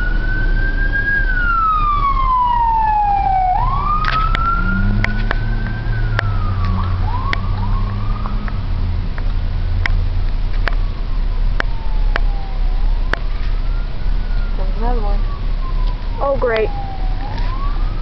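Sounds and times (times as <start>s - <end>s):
fire engine siren wailing: 0.0s - 18.0s
low engine rumble: 0.0s - 18.0s.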